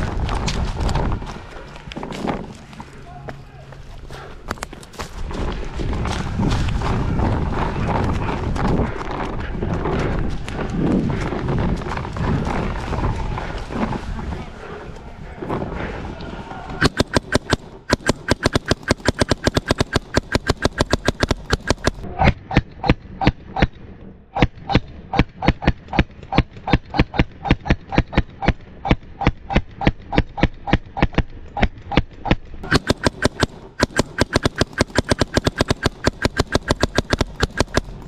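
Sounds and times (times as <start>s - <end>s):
paintball markers firing: 16.8s - 23.8s, 24.4s - 38.0s.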